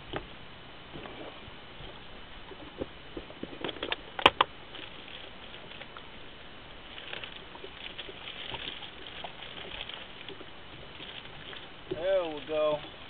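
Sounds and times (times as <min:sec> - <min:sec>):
faint light crackling: 0:00.9 - 0:13.0
fishing gear clicks and knocks: 0:02.5 - 0:06.1, 0:06.8 - 0:13.0.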